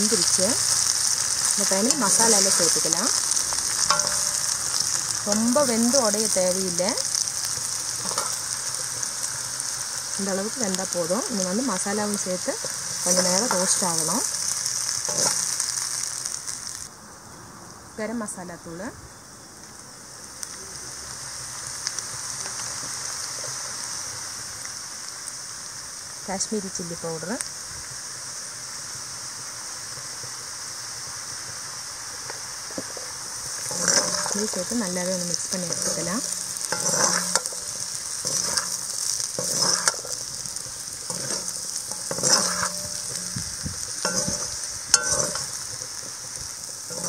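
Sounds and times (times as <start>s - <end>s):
oil popping: 0.0s - 16.9s
potatoes sizzling in hot oil: 0.0s - 16.9s, 18.0s - 47.0s
spatula scraping a pan: 0.2s - 4.9s, 7.1s - 9.1s, 11.8s - 15.9s, 33.5s - 34.7s, 35.6s - 47.0s.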